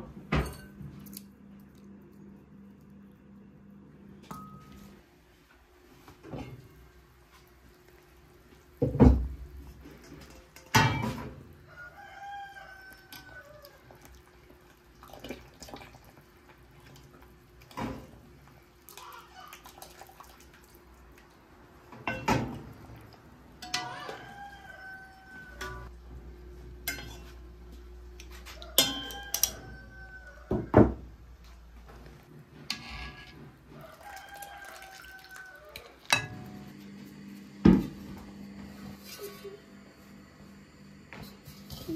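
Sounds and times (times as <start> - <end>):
kitchen utensils and dishes clattering: 0.3 - 0.9, 8.8 - 11.4, 21.9 - 22.7, 23.6 - 24.4, 26.8 - 27.4, 28.6 - 29.8, 41.3 - 41.9
rooster crowing: 11.6 - 13.9, 23.7 - 25.9, 28.4 - 31.0, 33.7 - 36.0.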